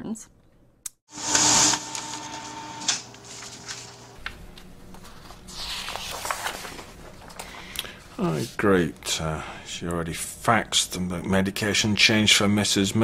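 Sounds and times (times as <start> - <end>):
fax machine printing: 1.1 - 4.2.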